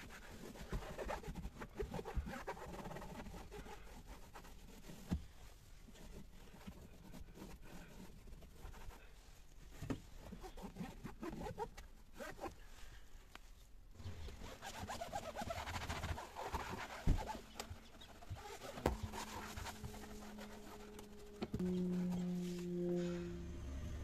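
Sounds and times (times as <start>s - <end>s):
cloth wiping plastic trim: 14.2s - 22.9s
steady low hum: 17.5s - 24.0s.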